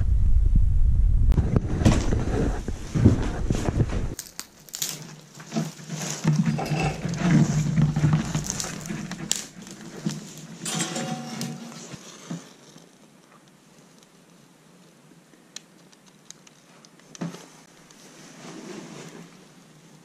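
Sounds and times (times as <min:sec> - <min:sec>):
low rumble: 0:00.0 - 0:01.7
twigs rustling and snapping: 0:04.1 - 0:10.6, 0:15.5 - 0:17.2.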